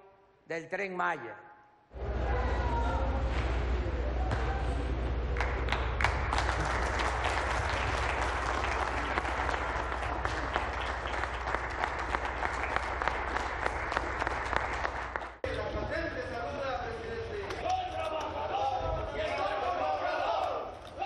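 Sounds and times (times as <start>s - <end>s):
low hum: 1.9s - 15.8s
people applauding: 4.3s - 15.4s.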